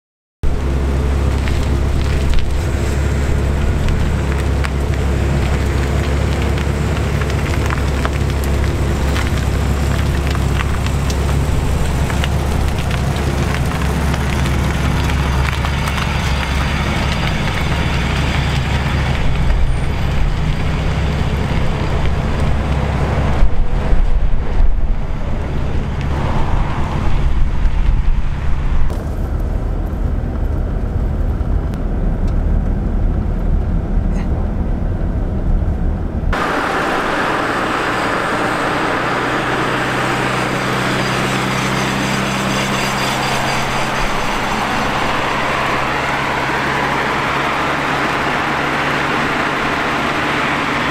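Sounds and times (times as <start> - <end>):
car engine: 0.4 - 50.9
tyre and road noise: 0.4 - 50.9.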